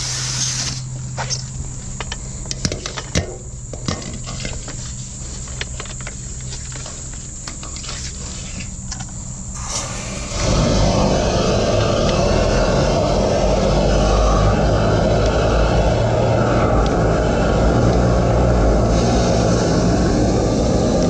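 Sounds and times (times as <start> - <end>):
hiss: 0.0 - 0.9, 9.5 - 21.0
engine humming: 0.0 - 21.0.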